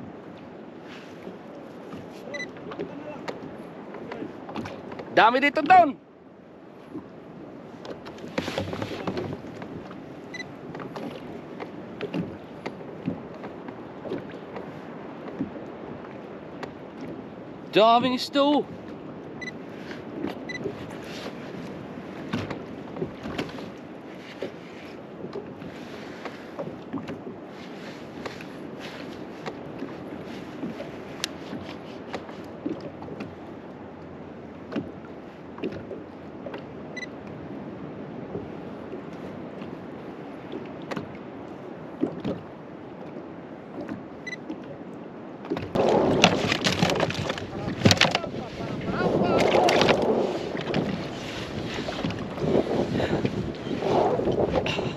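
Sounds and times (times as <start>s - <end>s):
water sloshing against boat: 0.0s - 54.9s
short electronic beep: 2.3s - 2.5s
wind noise: 45.6s - 54.9s
light knocks and handling noises: 46.3s - 48.3s.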